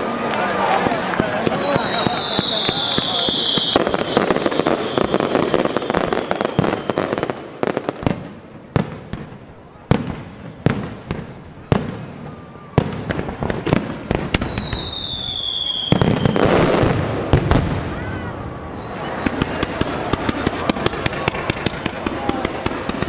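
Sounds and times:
firework bangs: 0.0 - 23.0
barrage of firework explosions: 0.7 - 23.0
whistling firework shell: 1.2 - 7.4, 14.0 - 16.9, 18.7 - 22.7.

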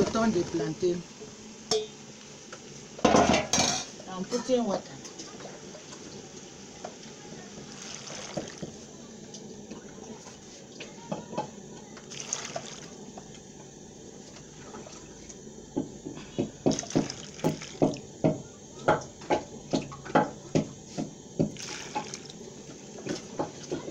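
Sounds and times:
water pouring into a pot: 5.2 - 8.9, 12.0 - 13.4, 16.6 - 20.3, 21.4 - 23.8.

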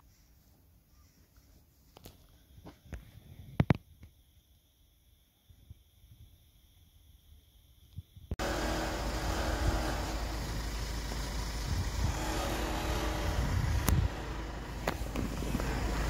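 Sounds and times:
chairlift machinery humming: 8.4 - 16.0.

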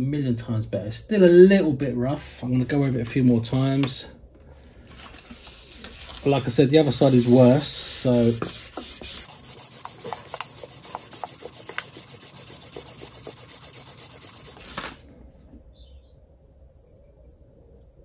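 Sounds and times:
sandpaper rubbing on metal: 7.0 - 14.9.

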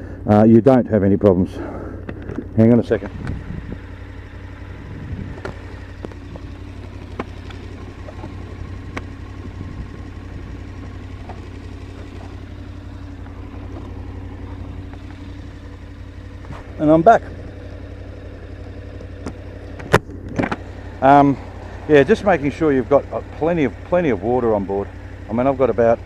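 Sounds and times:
motorcycle engine idling: 0.0 - 26.0
helmet handling clicks: 2.0 - 2.6, 3.2 - 3.7, 5.3 - 9.2.

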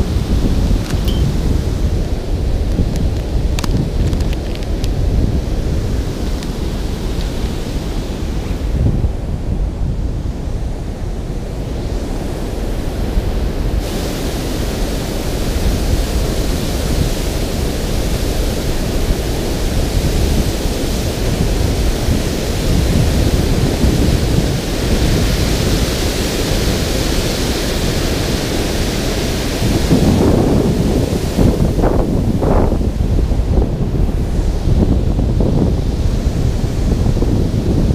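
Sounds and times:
wind buffeting microphone: 0.0 - 37.9
water rushing over spillway: 10.9 - 37.9.

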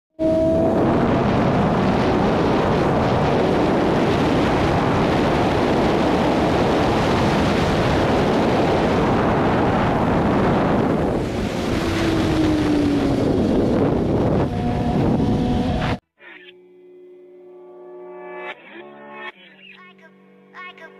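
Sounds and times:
wind rushing on microphone: 0.2 - 16.0.

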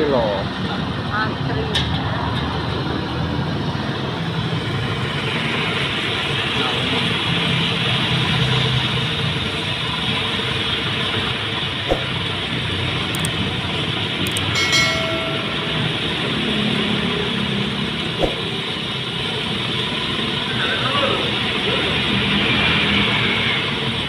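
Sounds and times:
hot oil sizzling in a wok: 4.3 - 12.8.

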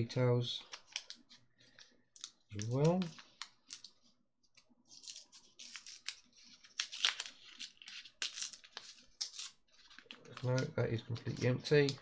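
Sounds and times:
paper packet crinkling and tearing: 4.9 - 12.0.

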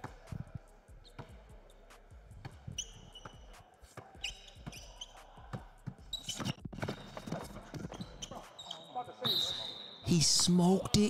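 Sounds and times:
shoe squeaks: 2.7 - 10.4
basketball bouncing on hardwood: 5.6 - 8.4.

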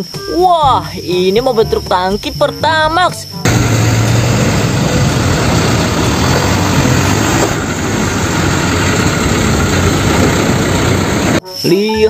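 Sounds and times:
truck diesel engine running: 3.4 - 11.4.

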